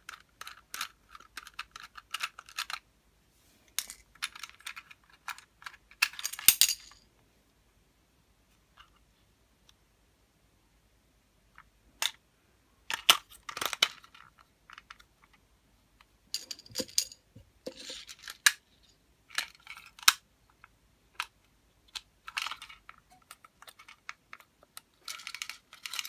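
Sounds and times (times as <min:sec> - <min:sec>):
toy train rattling and rustling: 0:00.0 - 0:02.8, 0:03.8 - 0:06.9, 0:12.9 - 0:15.4, 0:16.3 - 0:20.6, 0:21.9 - 0:26.0.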